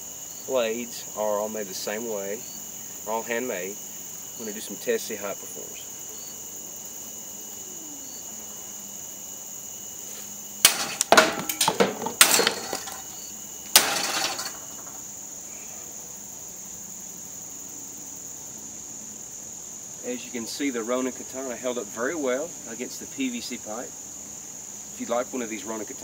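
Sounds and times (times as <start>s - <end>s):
sword striking plastic pipe: 10.6s - 13.1s, 13.8s - 14.7s
knocks and clatters: 10.7s - 15.0s.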